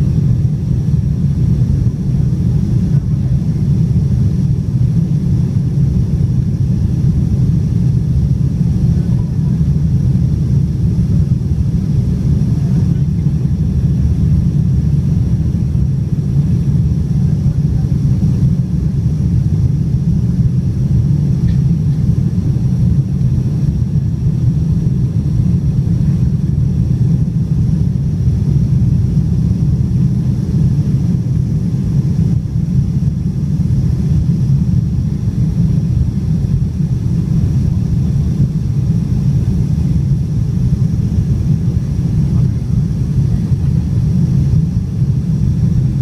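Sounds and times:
airliner cabin engine rumble: 0:00.0 - 0:46.0.

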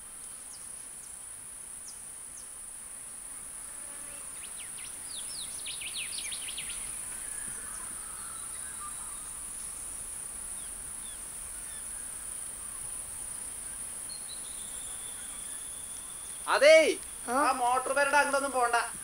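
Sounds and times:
bird chirps: 0:04.4 - 0:09.9, 0:13.6 - 0:19.0.

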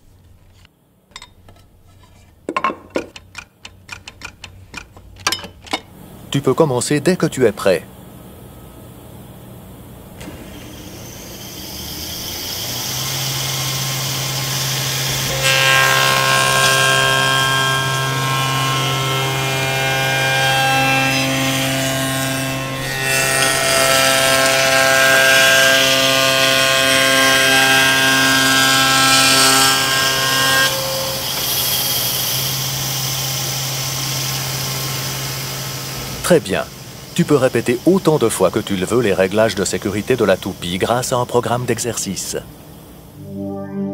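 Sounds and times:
spindle moulder motor running: 0:10.2 - 0:20.3
cutter working wood: 0:10.2 - 0:35.9.

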